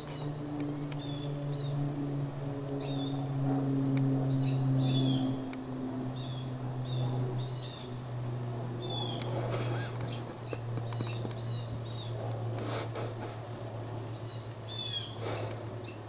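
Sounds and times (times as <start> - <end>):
small birds chirping: 0.0 - 1.8, 4.3 - 5.4, 8.8 - 12.2, 14.0 - 16.0
steady low hum: 0.0 - 16.0.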